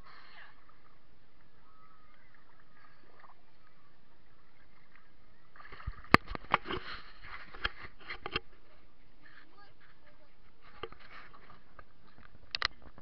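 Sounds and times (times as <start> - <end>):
water splashing: 0.0 - 8.8.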